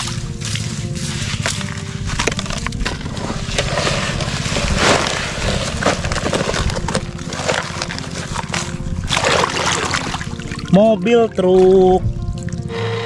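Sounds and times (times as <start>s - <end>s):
wet sand scraped from plastic: 0.6s - 10.2s.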